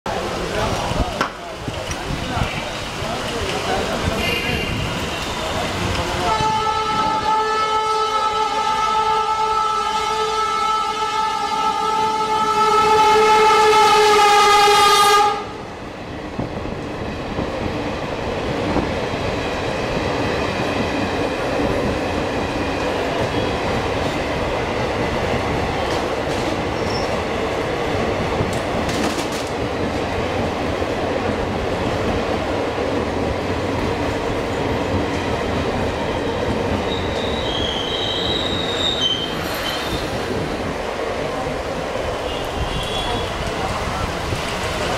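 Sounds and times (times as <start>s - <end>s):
heavy rain: 0.1s - 17.0s, 39.4s - 44.9s
train coaches rumbling and clattering: 0.1s - 44.9s
locomotive horn: 6.2s - 15.6s, 42.3s - 43.5s
brief high squeaks: 36.9s - 40.2s.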